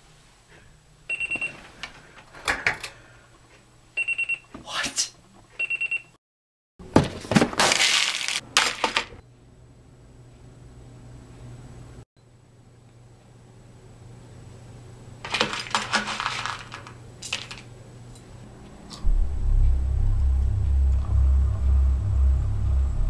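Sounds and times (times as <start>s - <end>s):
alarm clock beeping: 5.6s - 6.0s.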